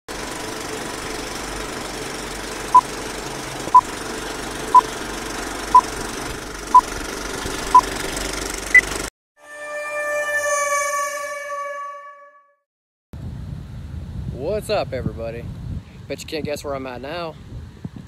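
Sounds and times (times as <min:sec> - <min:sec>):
film projector clatter and hiss: 0:00.1 - 0:09.1.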